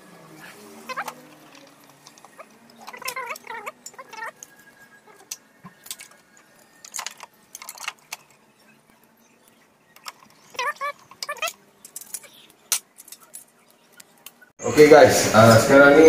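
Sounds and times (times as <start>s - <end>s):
short wavering squeaks: 0.0s - 9.2s, 9.9s - 12.6s.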